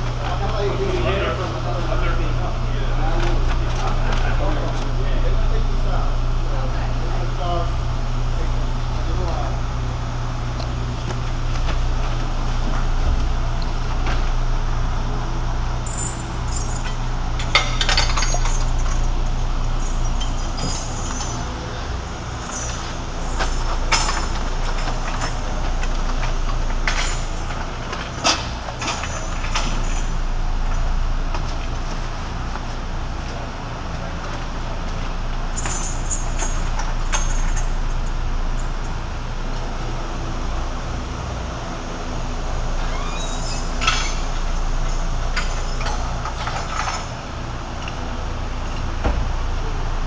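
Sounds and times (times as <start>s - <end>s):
factory machinery hum: 0.0s - 50.0s
metallic clinks and clanks: 15.8s - 21.8s, 22.4s - 31.0s, 35.5s - 39.0s, 42.8s - 47.2s.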